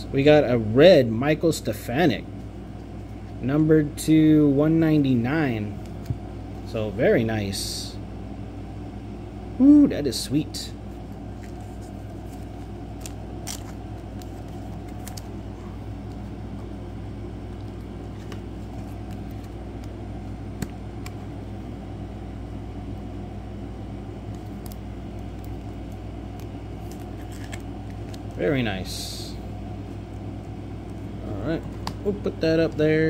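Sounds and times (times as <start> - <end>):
low machine hum: 0.0 - 33.0
trading cards clicking and rustling: 11.0 - 16.7, 17.5 - 20.0, 24.3 - 28.4.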